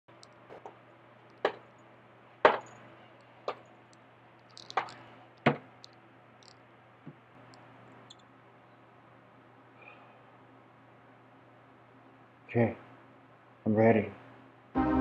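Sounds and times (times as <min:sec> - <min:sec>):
faint low hum: 0:00.1 - 0:15.0
sharp knocks: 0:02.4 - 0:02.7.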